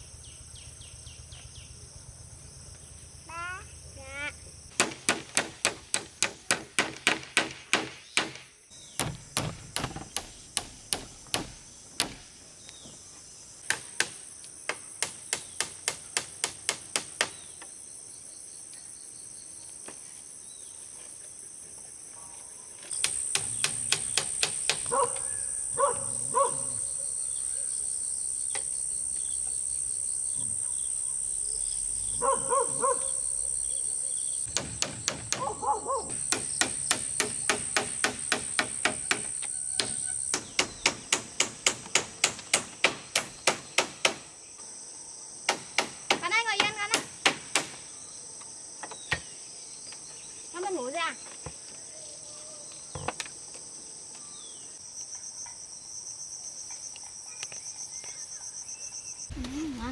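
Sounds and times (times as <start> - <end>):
high insect chorus: 0.0 - 59.9.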